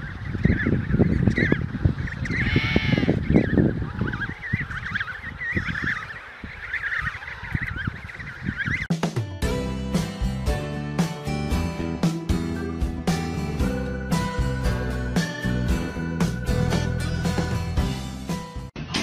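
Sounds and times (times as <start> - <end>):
penguin chicks chirping whistles: 3.2 - 8.9
acoustic guitar music: 9.0 - 18.9.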